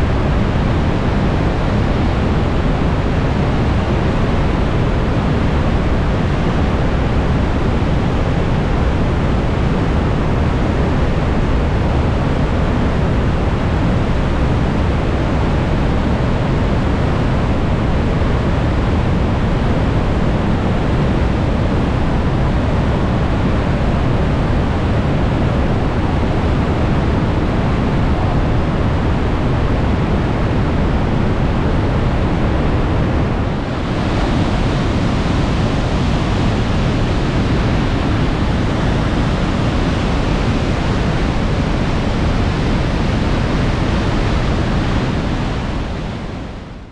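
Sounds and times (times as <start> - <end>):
waterfall rushing: 31.6 - 45.8.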